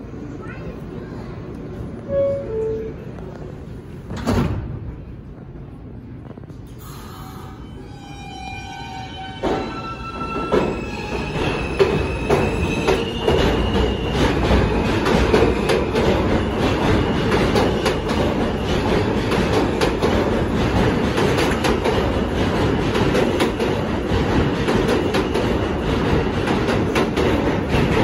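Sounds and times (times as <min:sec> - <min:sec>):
subway train rumbling past: 0:00.0 - 0:28.0.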